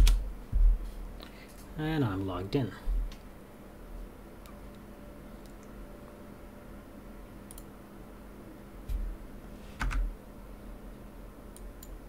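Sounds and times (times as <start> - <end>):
faint steady hum: 0.0 - 12.0
keyboard and mouse clicking: 7.5 - 7.7.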